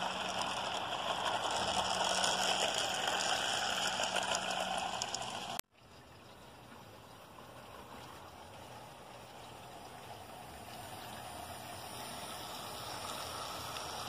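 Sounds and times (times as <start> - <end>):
model train wheels rattling on rail: 0.0 - 5.6.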